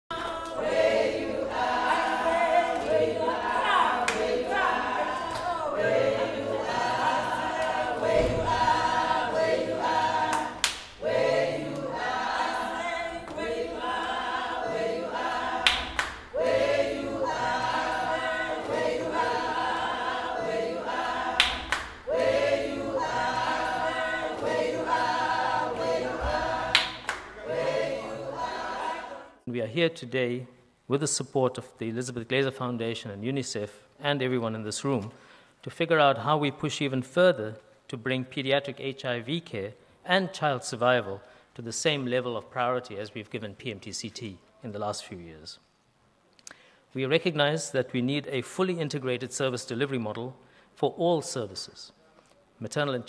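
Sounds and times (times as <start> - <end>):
choir singing: 0.1 - 29.5.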